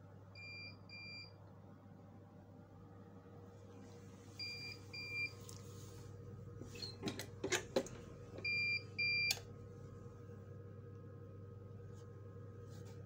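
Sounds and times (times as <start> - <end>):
clicks and knocks of press: 6.8 - 8.6.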